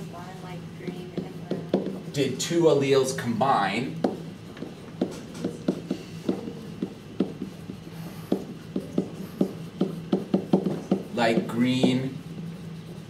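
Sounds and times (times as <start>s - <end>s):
stylus tapping on whiteboard: 0.8s - 2.1s, 4.0s - 12.1s.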